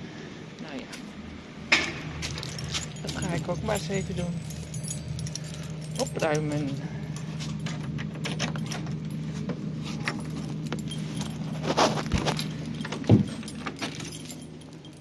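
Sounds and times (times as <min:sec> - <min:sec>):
low engine hum: 0:00.0 - 0:15.0
keys jangling: 0:02.2 - 0:15.0
lock and door clunks: 0:07.7 - 0:09.1.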